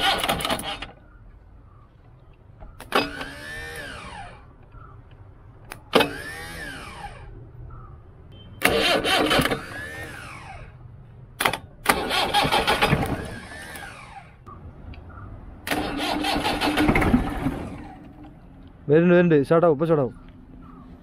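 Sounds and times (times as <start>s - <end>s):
starter motor cranking engine: 0.0s - 1.0s, 2.8s - 4.9s, 8.6s - 10.7s, 11.4s - 14.4s, 15.6s - 18.2s
sharp clicks: 4.6s - 6.2s.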